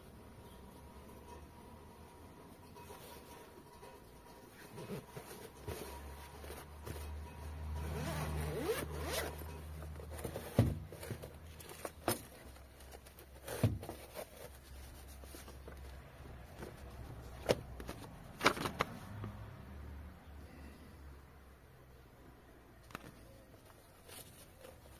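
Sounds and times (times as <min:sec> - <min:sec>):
handling noises: 0:02.5 - 0:19.4, 0:22.8 - 0:24.9
zipper pulled open: 0:07.8 - 0:09.5.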